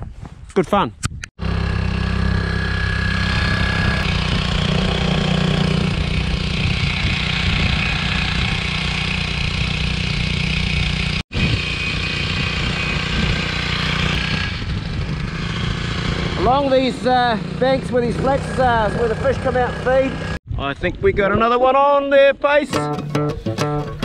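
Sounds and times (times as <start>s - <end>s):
outboard motor running: 1.4s - 14.4s.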